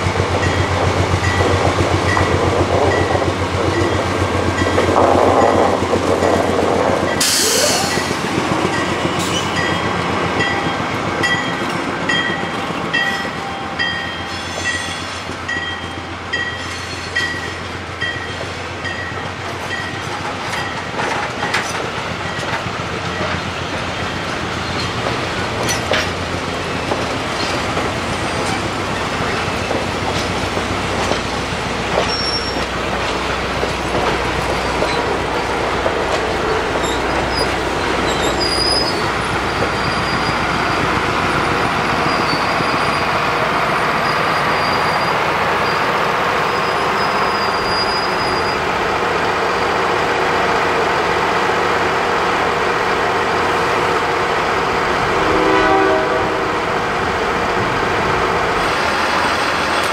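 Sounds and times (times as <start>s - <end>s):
train rolling rumble: 0.0s - 59.9s
train wheels squealing: 7.1s - 20.7s, 23.2s - 25.0s, 26.8s - 29.8s, 32.0s - 32.7s, 36.4s - 48.6s
wheels clicking over rail joints: 18.0s - 40.5s.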